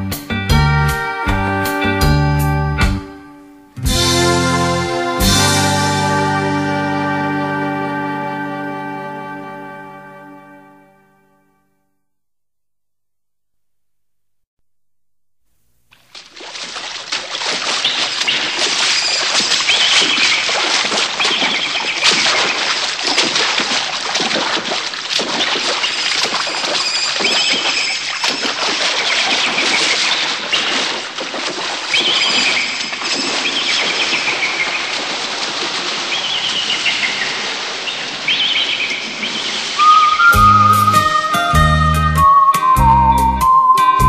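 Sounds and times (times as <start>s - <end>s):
birds chirping: 17.7s - 22.8s, 25.7s - 31.1s, 31.8s - 35.1s, 35.9s - 44.0s.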